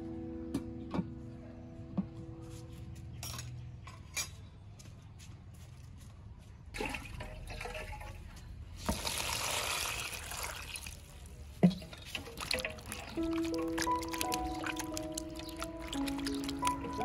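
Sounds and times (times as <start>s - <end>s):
water pouring into plastic basin: 6.8s - 8.2s, 8.8s - 17.0s.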